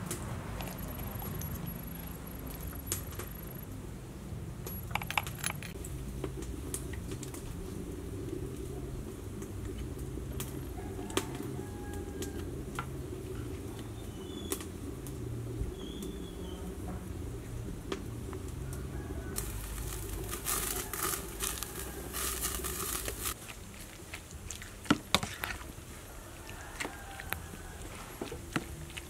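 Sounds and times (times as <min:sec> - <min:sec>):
steady low hum: 0:05.6 - 0:24.6.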